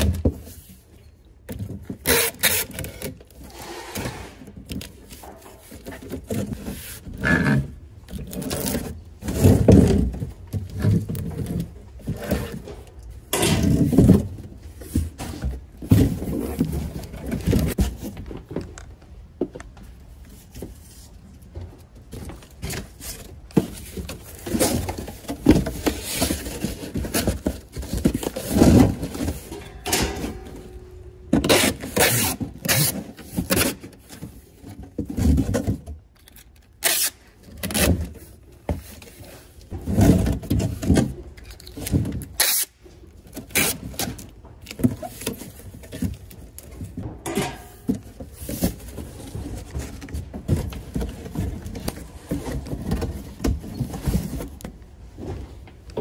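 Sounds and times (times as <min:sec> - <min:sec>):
cardboard boxes being handled: 0:04.6 - 0:29.6, 0:37.4 - 0:42.4, 0:47.8 - 0:55.9.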